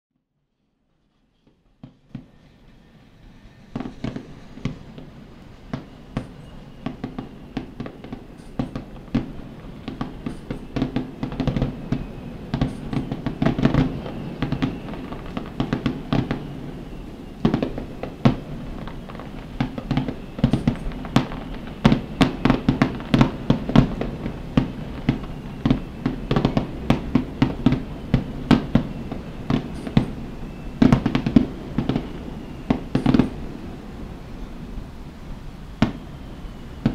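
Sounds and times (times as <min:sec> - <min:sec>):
fireworks bursting: 0:01.8 - 0:36.9.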